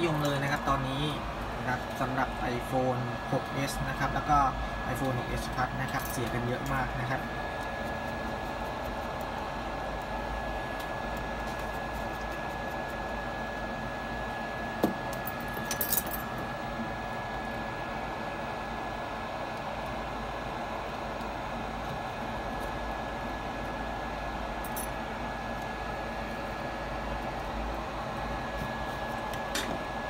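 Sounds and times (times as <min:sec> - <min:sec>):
equipment hum and hiss: 0:00.0 - 0:30.0.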